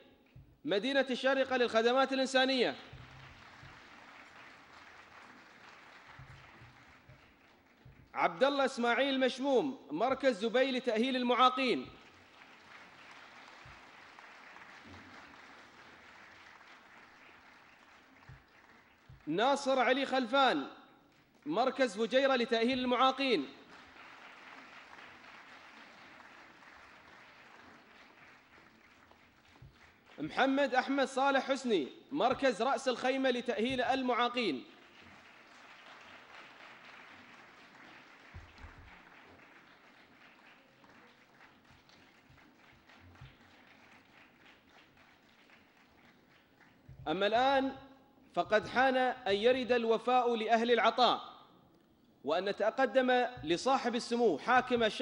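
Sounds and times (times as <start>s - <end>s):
faint audience applause: 2.6s - 8.2s, 11.8s - 19.4s, 23.2s - 30.6s, 34.3s - 47.1s.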